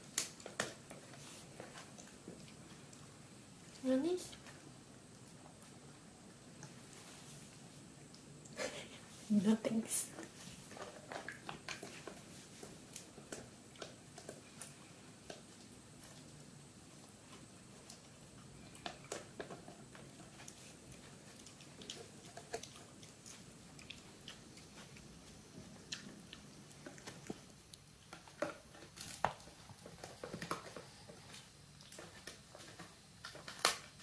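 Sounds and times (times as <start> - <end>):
puppy chewing: 0.1 - 9.0, 10.0 - 34.0.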